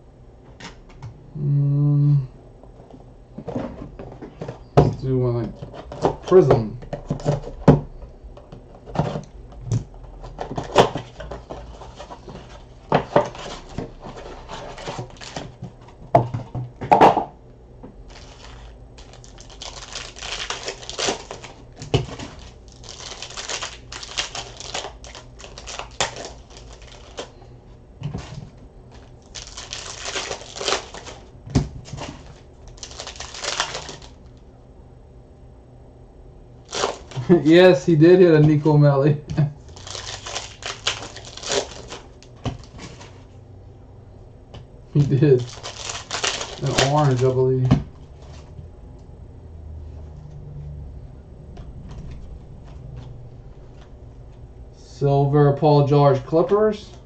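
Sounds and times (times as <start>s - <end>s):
cards and wrappers rustling: 10.0s - 16.6s, 18.0s - 34.3s, 36.6s - 38.9s, 39.7s - 43.3s, 45.0s - 48.6s.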